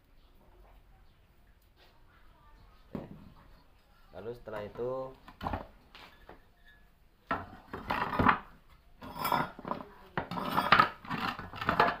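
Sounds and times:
metal clattering on wooden boards: 0:07.3 - 0:12.0.

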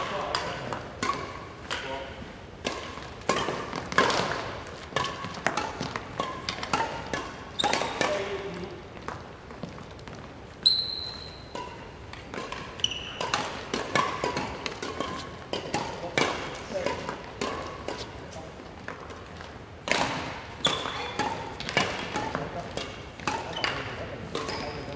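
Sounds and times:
rackets striking shuttlecocks: 0:00.0 - 0:24.9
shoe squeaks on wooden floor: 0:10.6 - 0:11.5, 0:12.8 - 0:13.2, 0:20.6 - 0:21.2.

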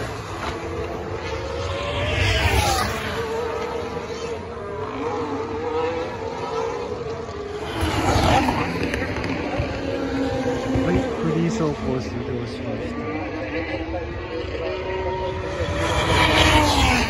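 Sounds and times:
racing car engines passing: 0:00.0 - 0:17.0.

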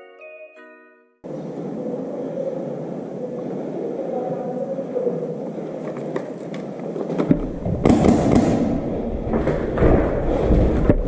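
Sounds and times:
knocks and thuds: 0:07.2 - 0:11.0.

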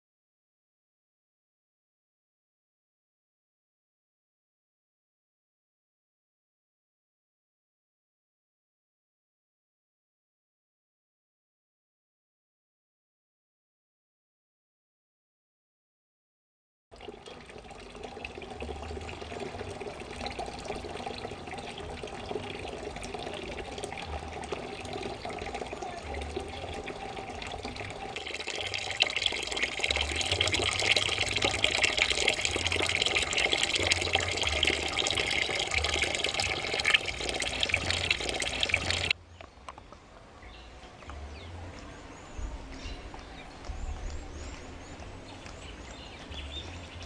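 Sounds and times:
tap water filling plastic can: 0:17.0 - 0:39.2.

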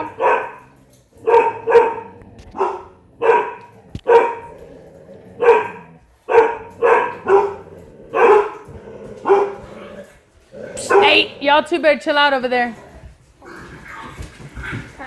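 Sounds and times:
dogs barking: 0:00.0 - 0:04.6, 0:05.3 - 0:09.9, 0:10.8 - 0:11.5.

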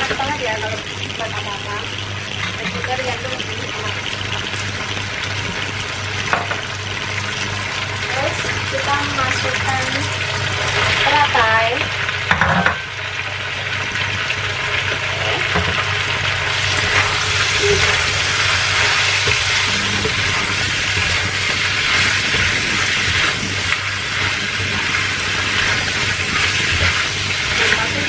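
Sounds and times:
electric cooktop humming: 0:00.0 - 0:28.0
food sizzling in a wok: 0:00.0 - 0:28.0
spatula stirring: 0:16.4 - 0:28.0.

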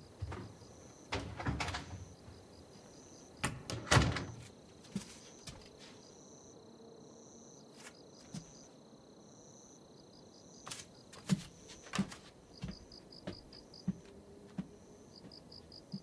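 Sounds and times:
crickets chirping: 0:00.0 - 0:16.0
high insect trill: 0:00.0 - 0:16.0.

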